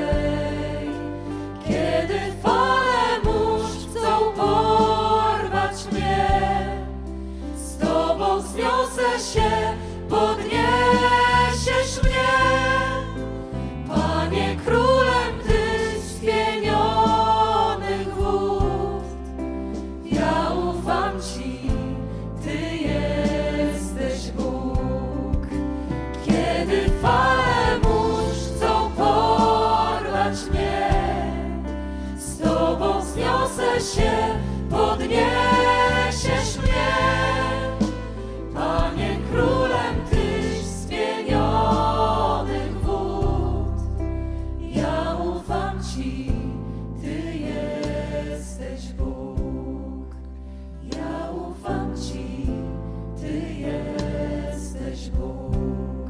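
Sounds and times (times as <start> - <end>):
voices singing a hymn: 0.0 - 56.0.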